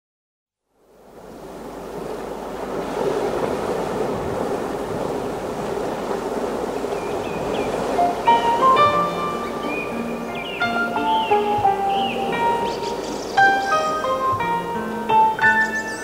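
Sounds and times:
waves breaking: 0:00.9 - 0:16.0.

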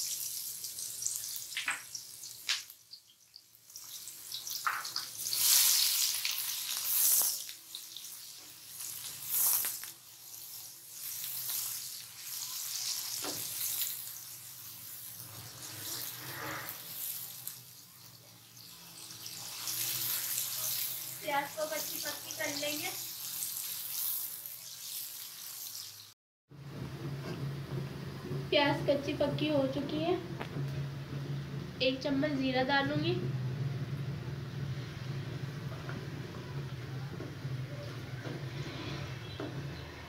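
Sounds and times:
onions sizzling in hot oil: 0:00.0 - 0:26.2
spoon scraping a pan: 0:15.2 - 0:17.5.

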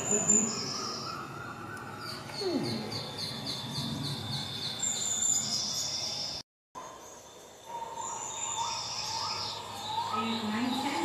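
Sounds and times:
small animals chirping: 0:07.6 - 0:11.0.

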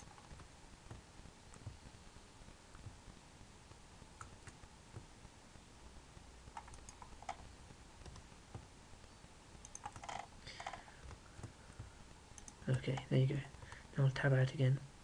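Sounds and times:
low hiss: 0:00.0 - 0:15.0
mouse and keyboard clicks: 0:06.5 - 0:07.4, 0:09.6 - 0:11.5.

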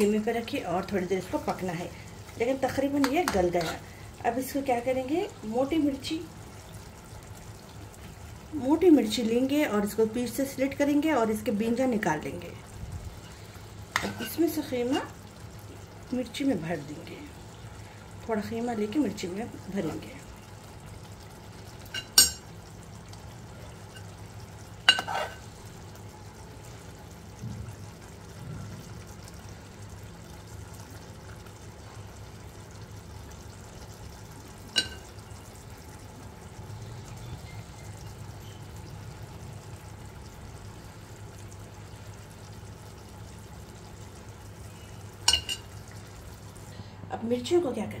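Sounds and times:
low steady hum: 0:00.0 - 0:48.0
spoon clinking against pot: 0:21.9 - 0:22.5, 0:34.7 - 0:35.1, 0:45.2 - 0:45.7.

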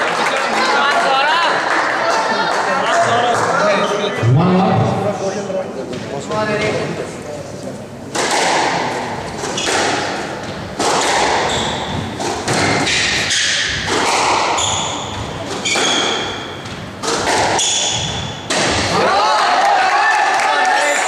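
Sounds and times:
ball hitting walls: 0:08.1 - 0:19.0
racket hitting squash ball: 0:08.1 - 0:19.0
shoes squeaking on wooden floor: 0:11.4 - 0:17.0.

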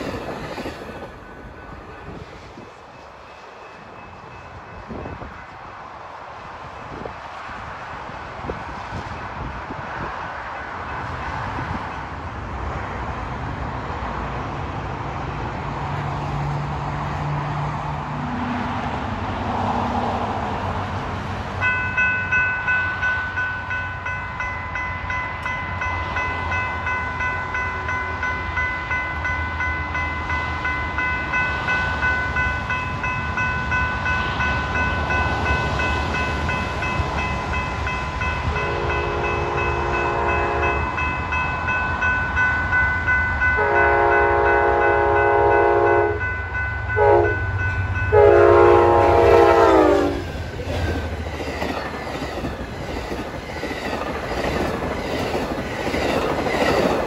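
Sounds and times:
railroad crossing bell ringing: 0:00.0 - 0:05.9, 0:21.6 - 0:57.0
rumble of train passing: 0:00.0 - 0:57.0
train horn blasts: 0:38.4 - 0:41.0, 0:43.6 - 0:46.3, 0:46.9 - 0:50.3.

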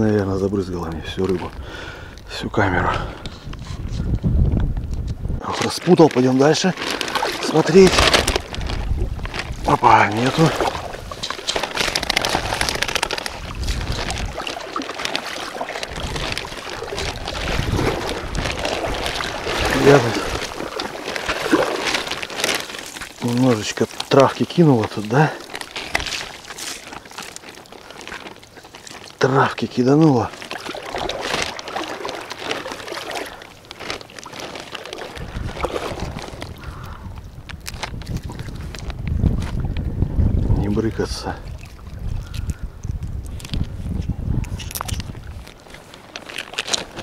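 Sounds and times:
wind buffeting microphone: 0:00.0 - 0:14.7, 0:15.5 - 0:22.2, 0:35.1 - 0:45.6
seawater sloshing and splashing: 0:05.5 - 0:47.0
water dripping: 0:08.3 - 0:37.0.

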